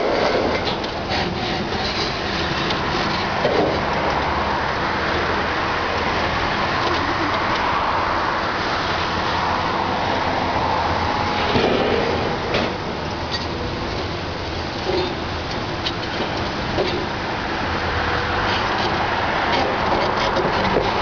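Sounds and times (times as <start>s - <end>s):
hydraulic noise: 0.0s - 3.9s.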